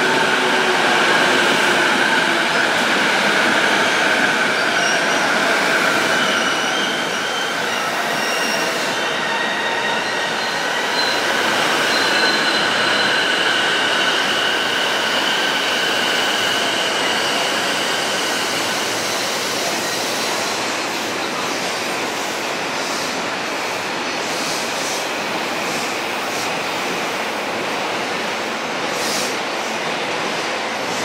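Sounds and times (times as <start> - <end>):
train wheels rumbling on track: 0.0 - 31.0
wheels squealing on rail: 0.1 - 21.6.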